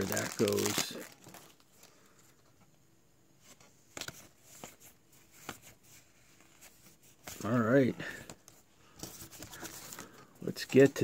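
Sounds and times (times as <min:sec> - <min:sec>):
foil wrappers rustling: 0:00.0 - 0:02.1.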